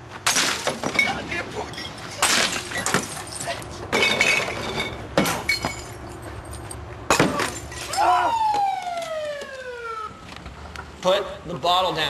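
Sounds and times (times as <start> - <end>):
glass bottle smashing: 0.3 - 6.0, 7.1 - 8.0
police siren wailing: 7.9 - 10.4.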